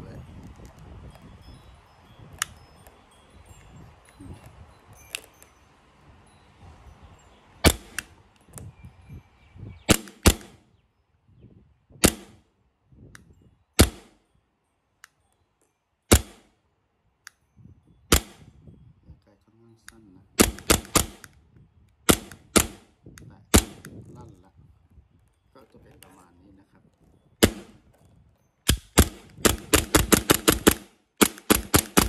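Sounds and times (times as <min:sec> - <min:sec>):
airsoft pistol firing: 0:07.6 - 0:08.0, 0:09.9 - 0:10.6, 0:12.0 - 0:12.4, 0:13.8 - 0:14.1, 0:16.1 - 0:16.4, 0:18.1 - 0:18.4, 0:20.4 - 0:21.3, 0:22.1 - 0:22.9, 0:23.5 - 0:23.8, 0:27.4 - 0:27.7, 0:28.7 - 0:32.0.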